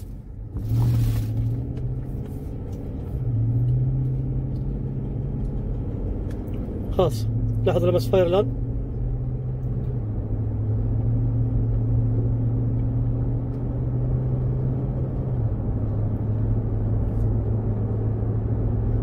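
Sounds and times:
car engine and road noise drone: 0.0 - 19.0.

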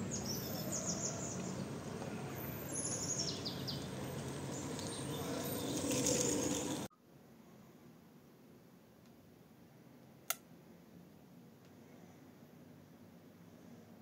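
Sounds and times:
small birds chirping: 0.0 - 6.9
outdoor background hum: 0.0 - 14.0.

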